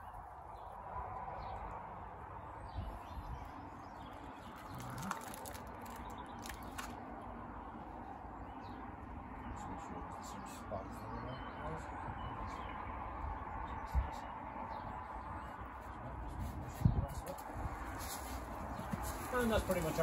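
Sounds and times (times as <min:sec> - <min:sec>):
faint birdsong: 0:00.0 - 0:20.0
plants pulled from plastic trays: 0:04.1 - 0:07.0, 0:18.0 - 0:20.0.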